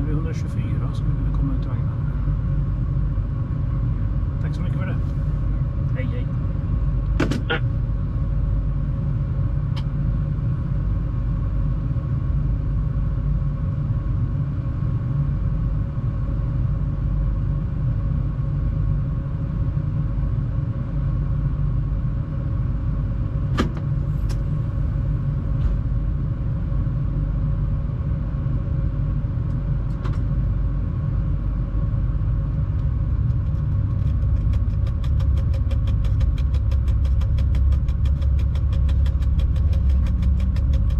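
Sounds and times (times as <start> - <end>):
locomotive rumble and hum: 0.0 - 40.9
sharp clicks: 33.5 - 40.9.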